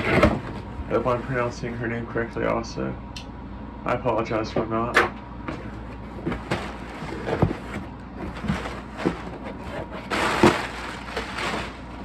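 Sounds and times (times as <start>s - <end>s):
cardboard knocks and scrapes: 5.5s - 11.8s
plastic packing rustling: 5.7s - 12.0s.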